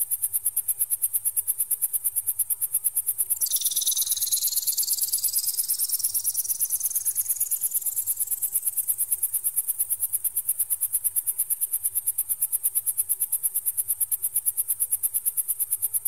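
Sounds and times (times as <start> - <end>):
high-pitched pulsing beeps: 3.4 - 8.5.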